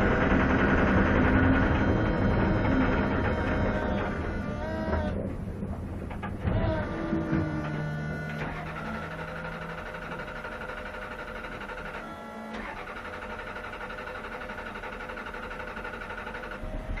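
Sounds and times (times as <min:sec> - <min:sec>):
starter motor cranking engine: 0:00.0 - 0:17.0.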